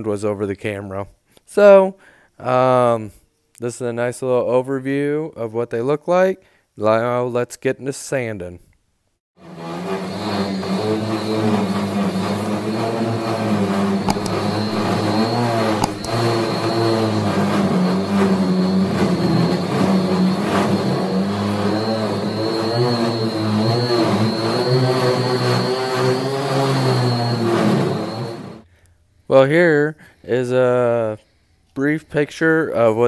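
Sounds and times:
high whine: 10.1s - 28.6s
orbital sander on metal: 11.0s - 16.7s.

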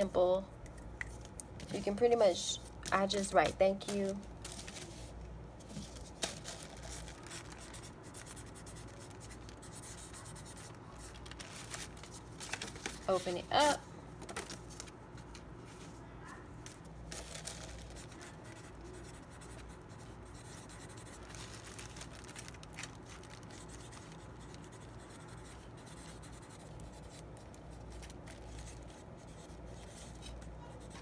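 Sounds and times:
marker scratching on paper: 7.6s - 11.1s, 18.0s - 21.2s, 23.6s - 27.4s.

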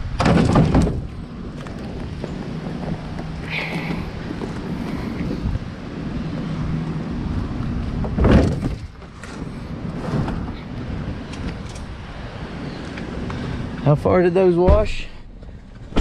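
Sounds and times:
tires shifting knock: 0.0s - 13.9s
wind noise: 0.0s - 14.0s
tire thumping into truck bed: 0.1s - 1.2s.

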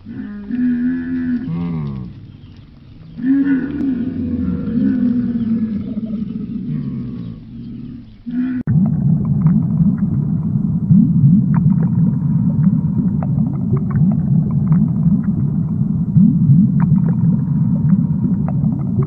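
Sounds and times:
camel bellowing: 0.0s - 8.7s
water gurgling and bubbling: 3.1s - 19.0s.

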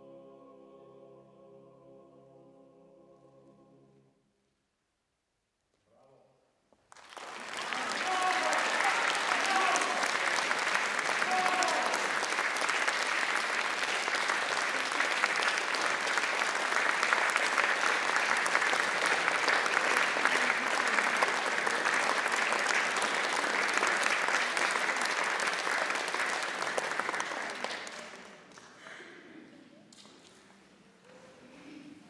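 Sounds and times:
audience applauding: 6.8s - 28.8s.

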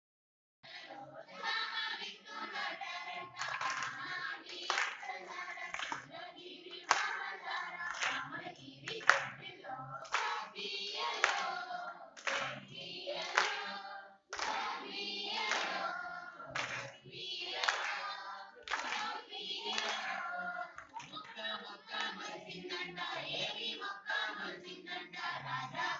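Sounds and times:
women singing together: 0.6s - 25.9s
hands clapping in time: 3.4s - 6.1s, 6.7s - 7.2s, 7.8s - 10.5s, 11.1s - 11.6s, 12.2s - 14.8s, 15.4s - 15.9s, 16.6s - 22.4s.

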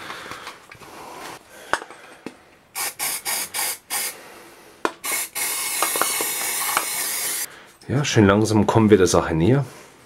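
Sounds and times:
aerosol spray hissing: 2.8s - 4.2s, 5.0s - 7.5s.

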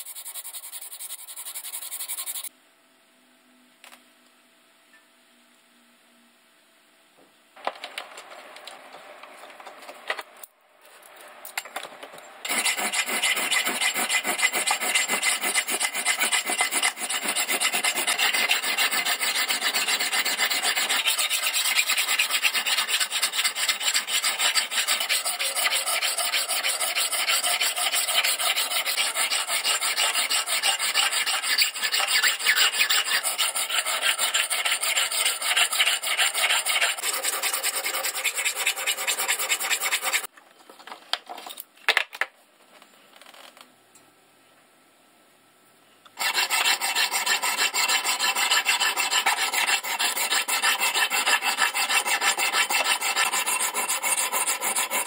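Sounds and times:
hand file scraping steel: 0.0s - 2.5s, 12.5s - 40.3s, 46.2s - 55.0s.

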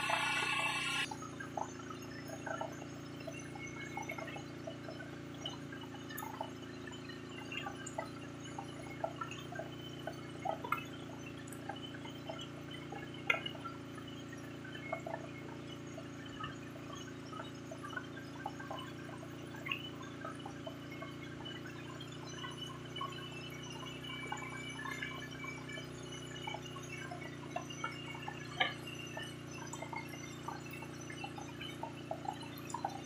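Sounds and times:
steady low hum: 0.0s - 1.1s
water dripping and splashing: 9.0s - 21.1s.

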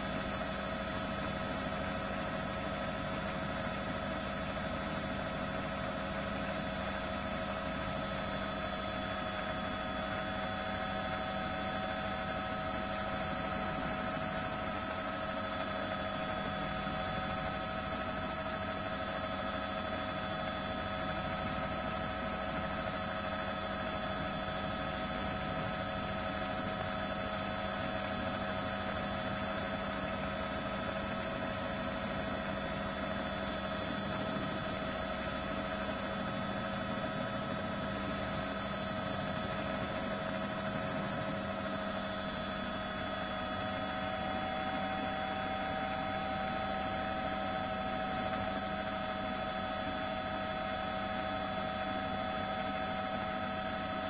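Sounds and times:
helicopter drone from on board: 0.0s - 54.0s.

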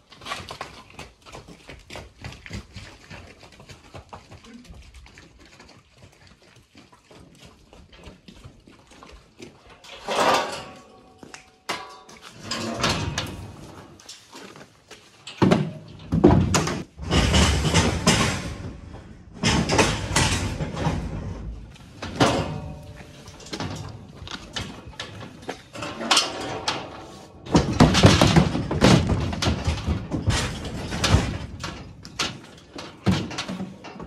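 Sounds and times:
steel gates banging and rattling: 9.8s - 14.0s, 15.3s - 34.0s.

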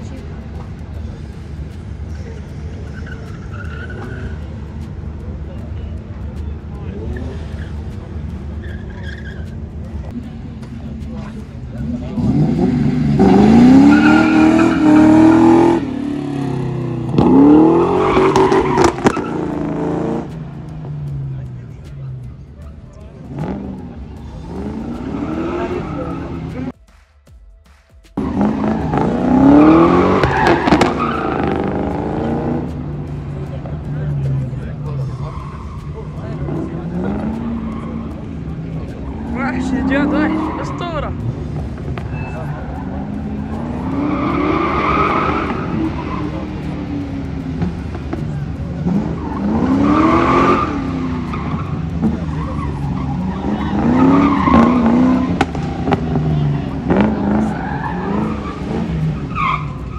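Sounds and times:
car engine revving: 0.0s - 26.8s, 28.1s - 59.9s
tyres squealing: 2.8s - 4.7s, 8.6s - 9.6s, 13.2s - 19.8s, 34.9s - 59.9s.

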